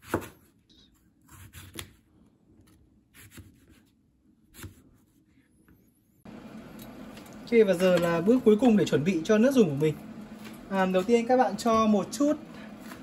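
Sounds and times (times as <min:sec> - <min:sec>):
knife cutting on plastic board: 0:01.2 - 0:02.0, 0:02.6 - 0:03.9.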